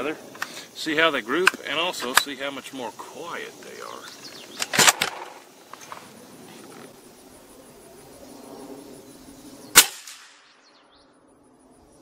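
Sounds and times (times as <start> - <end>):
suppressed rifle shot: 4.6 - 5.4, 9.7 - 10.6.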